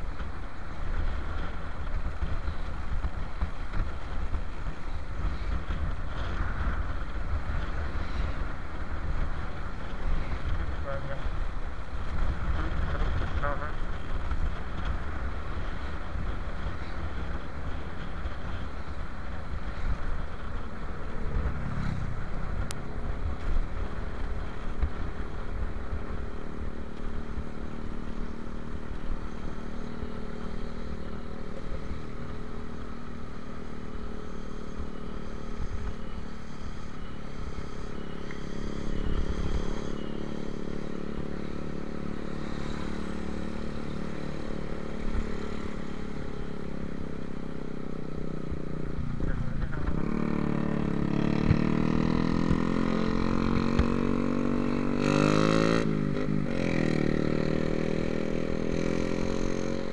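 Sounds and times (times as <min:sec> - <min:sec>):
wind buffeting microphone: 0:00.0 - 0:26.8
motorcycle engine running: 0:00.0 - 0:59.9.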